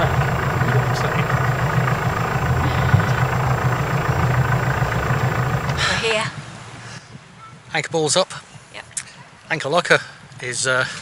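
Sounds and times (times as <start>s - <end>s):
boat diesel engine humming: 0.0s - 6.2s.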